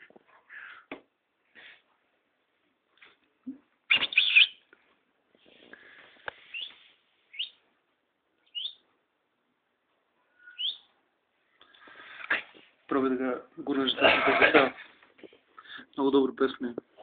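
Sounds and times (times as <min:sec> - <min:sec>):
songbird chirping: 0:03.9 - 0:04.8, 0:06.3 - 0:07.7, 0:08.4 - 0:08.9, 0:10.2 - 0:11.8.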